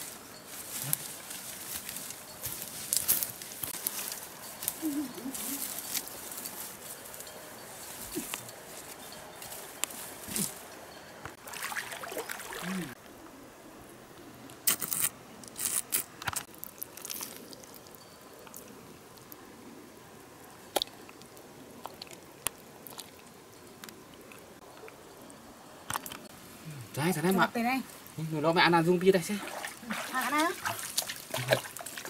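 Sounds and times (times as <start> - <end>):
mud squelching and splashing: 29.2 - 32.0.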